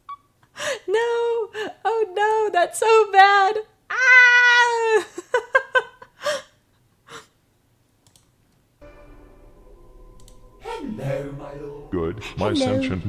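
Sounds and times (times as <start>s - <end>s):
quiet background music: 8.8s - 13.0s.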